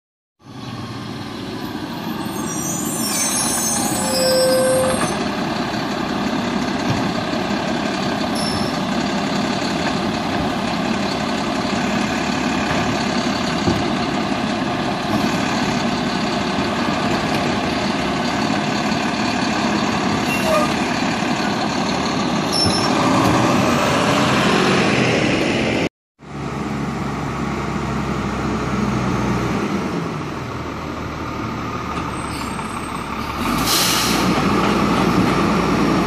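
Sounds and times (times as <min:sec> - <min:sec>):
air brake hiss and squeal: 0:01.9 - 0:05.2, 0:08.4 - 0:08.8, 0:20.3 - 0:20.8, 0:32.1 - 0:32.9, 0:33.6 - 0:34.4
truck engine running: 0:05.2 - 0:20.2.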